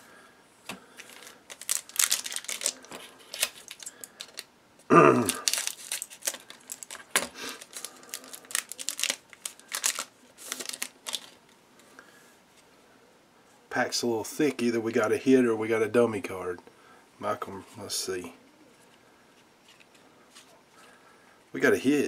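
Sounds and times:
cards being shuffled: 0.7s - 4.4s
foil wrappers crinkling: 0.9s - 4.5s, 5.2s - 11.5s.

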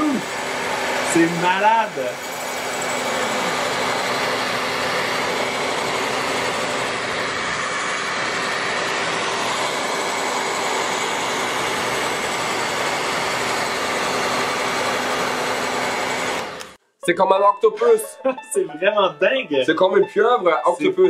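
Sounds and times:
hair dryer running: 0.0s - 16.8s.

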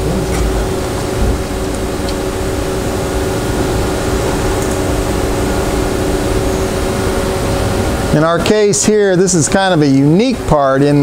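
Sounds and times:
machine shop equipment hum: 0.0s - 11.0s
steady tones: 0.0s - 11.0s.

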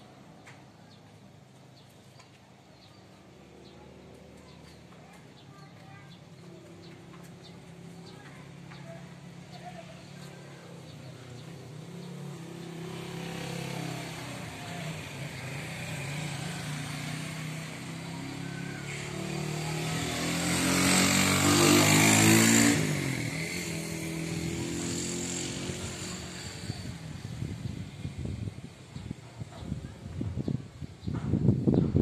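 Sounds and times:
motorcycle passing: 0.0s - 32.0s.

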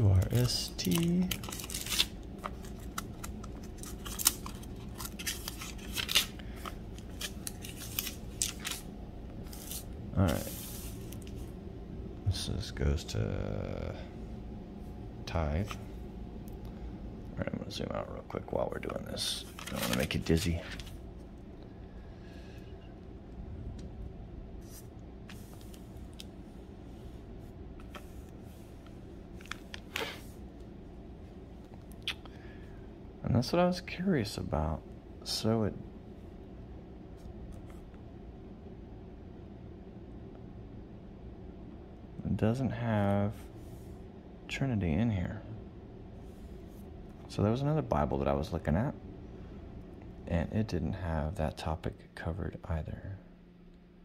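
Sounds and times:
low steady hum: 0.0s - 54.0s
thin book pages flipping: 0.8s - 11.4s, 19.4s - 21.0s.

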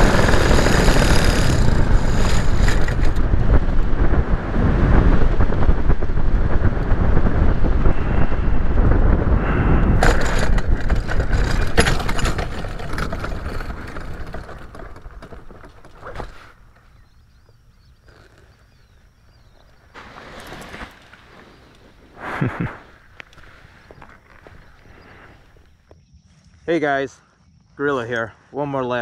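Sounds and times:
paramotor engine and wind: 0.0s - 19.4s
wheels knocking on landing: 10.0s - 16.6s.

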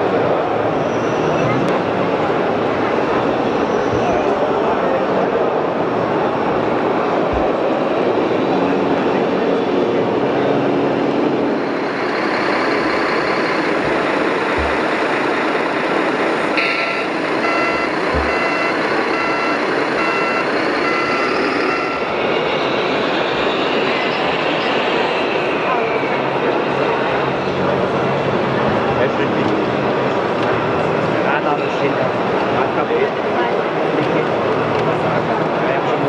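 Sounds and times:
steady background noise: 0.0s - 36.0s
pulsed electronic reversing beep: 16.6s - 22.2s.

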